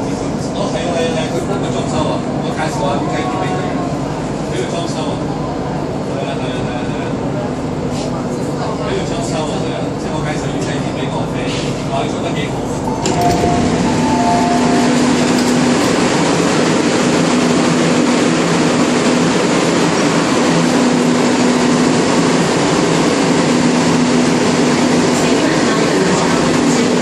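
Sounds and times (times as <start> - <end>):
train wheels rumbling: 11.4 - 27.0.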